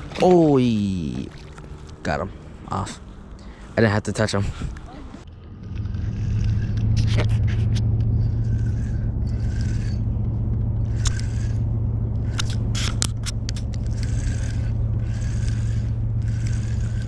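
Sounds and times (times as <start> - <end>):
boat motor humming: 0.0 - 3.7, 4.3 - 17.0
fishing reel clicking and whirring: 5.6 - 17.0.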